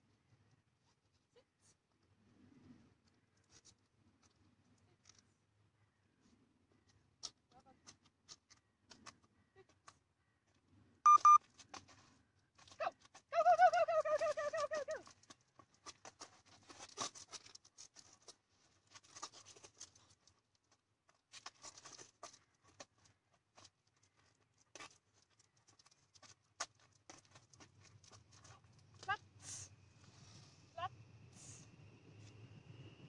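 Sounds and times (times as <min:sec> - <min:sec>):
paws and lure scuffing on asphalt: 0:11.4 - 0:13.3, 0:15.0 - 0:30.7.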